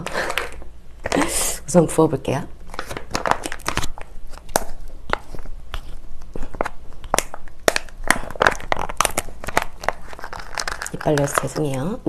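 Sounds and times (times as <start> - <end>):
plastic pouch crinkling: 2.6 - 12.0.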